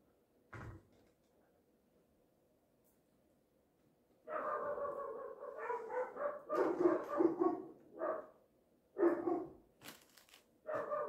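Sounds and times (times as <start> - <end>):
dog barking: 4.3 - 9.6, 10.6 - 11.0.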